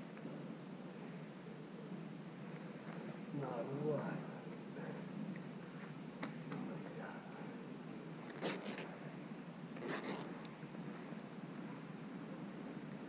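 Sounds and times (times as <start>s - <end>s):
sharp click: 6.2s - 6.7s.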